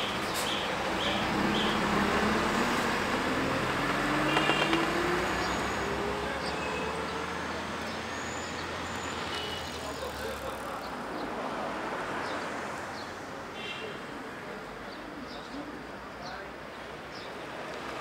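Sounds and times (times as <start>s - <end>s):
bus engine pulling away: 0.0s - 11.2s
street traffic: 0.0s - 18.0s.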